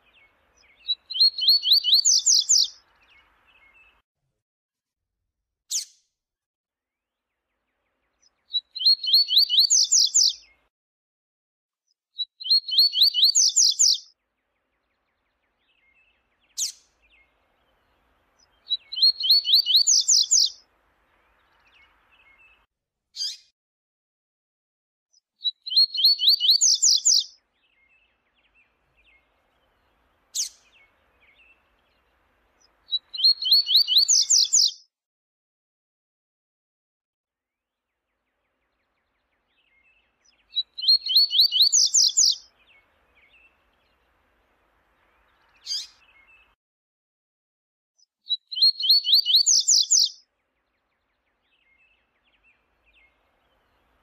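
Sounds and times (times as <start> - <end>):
bird trilling song: 0.0 - 4.0, 7.8 - 10.6, 12.2 - 22.6, 23.2 - 23.5, 25.1 - 34.8, 37.9 - 44.4, 45.0 - 46.6, 48.0 - 54.0.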